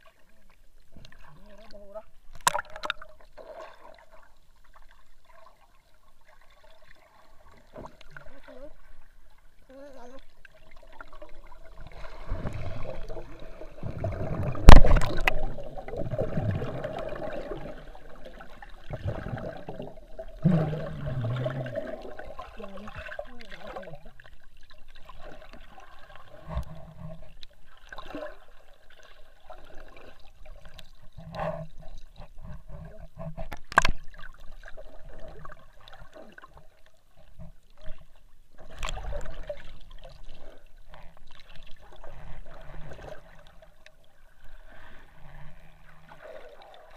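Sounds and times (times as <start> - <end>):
muffled underwater gurgling: 11.1 - 24.3.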